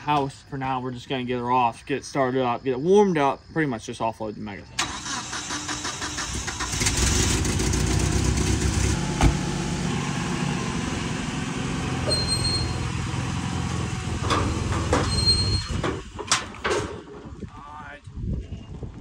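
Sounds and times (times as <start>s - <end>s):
engine running: 4.8s - 16.4s
car door slamming: 9.1s - 9.6s.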